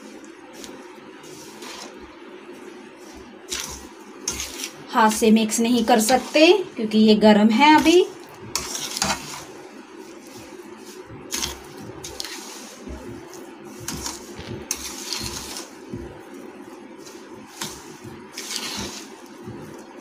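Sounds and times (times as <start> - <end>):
utensil scraping steel pot: 7.8 - 9.5, 13.8 - 15.8, 17.6 - 20.0.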